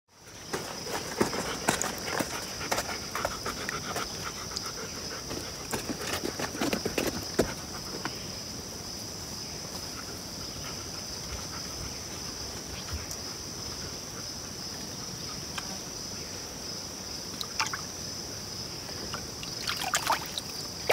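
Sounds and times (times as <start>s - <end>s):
high-pitched insect chorus: 0.1s - 20.9s
dog snuffling breaths: 0.6s - 8.1s.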